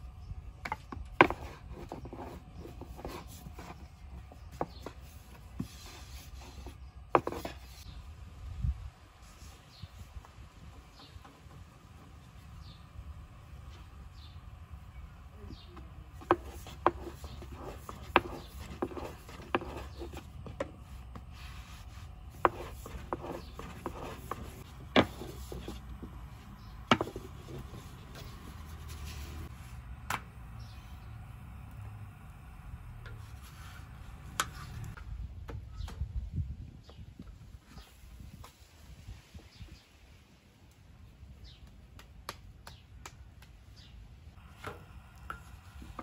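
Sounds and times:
rolling pin rolling over dough: 16.1s - 29.7s.

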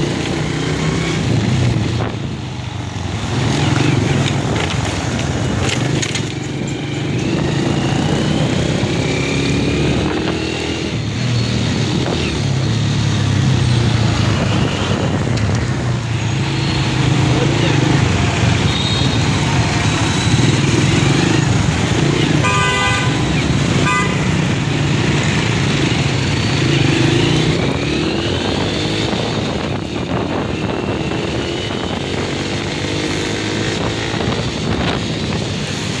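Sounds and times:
road and traffic noise: 0.0s - 36.0s
motorcycle horn honking: 22.3s - 24.4s.

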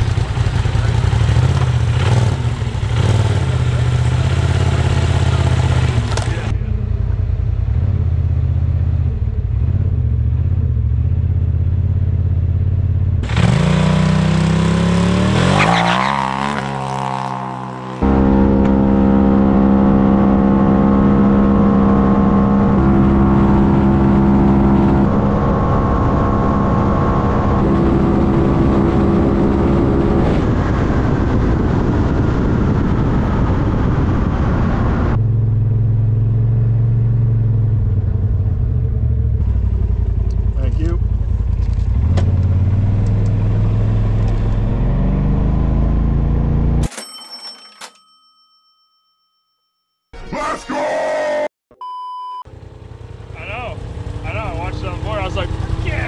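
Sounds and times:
turbocharged engine revving: 0.0s - 6.6s, 13.2s - 41.1s, 41.8s - 46.8s, 52.7s - 56.0s.

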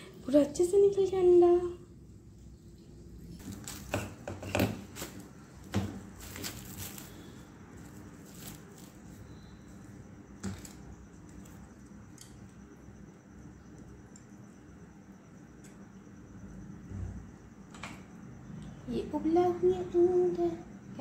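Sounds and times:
cling film crinkling: 6.0s - 9.2s.

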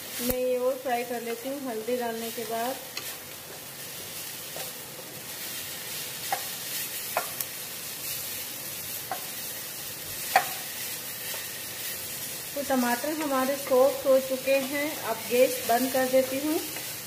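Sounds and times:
vegetables sizzling in hot oil: 0.0s - 17.0s
spatula knocking against pan: 10.3s - 10.6s.

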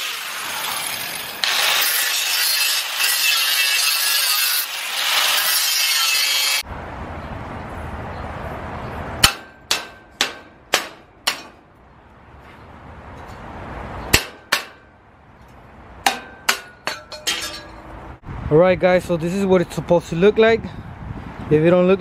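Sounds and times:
hand tool striking metal tubing: 9.2s - 11.6s, 14.1s - 14.9s, 16.0s - 18.0s.

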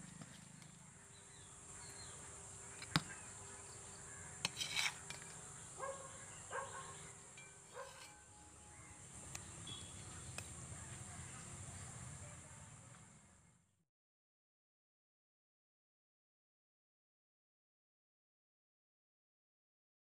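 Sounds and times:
high insect drone: 0.7s - 12.7s
metal spoon scraping a steel pot: 4.4s - 5.4s, 6.9s - 8.6s.

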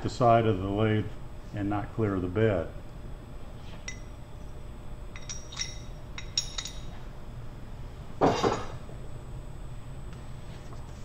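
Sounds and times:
metal parts clinking: 5.2s - 7.0s.

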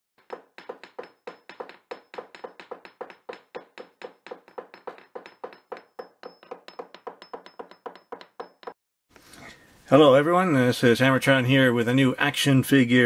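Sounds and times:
sharp ringing knocks: 0.2s - 8.8s.

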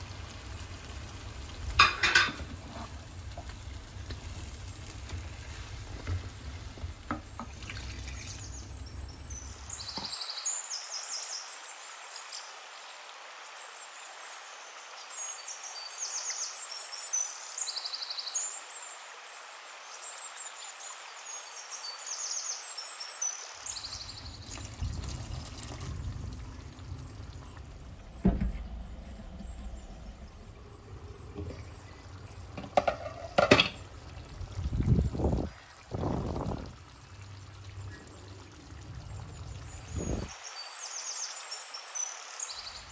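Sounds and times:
curry bubbling and hissing: 0.0s - 11.1s, 23.2s - 42.9s.

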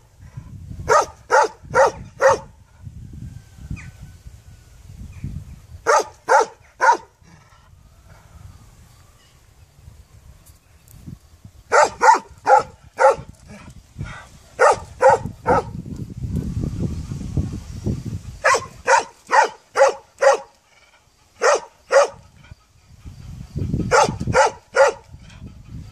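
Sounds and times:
dog barking: 0.9s - 2.5s, 5.9s - 7.1s, 11.7s - 13.3s, 14.6s - 15.7s, 18.4s - 20.5s, 21.4s - 22.2s, 23.9s - 25.1s.

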